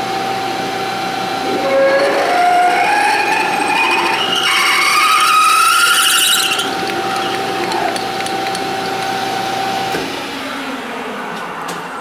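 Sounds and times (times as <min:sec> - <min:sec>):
steady drill whine: 0:00.0 - 0:10.7
drill squealing on lathe: 0:01.4 - 0:07.3.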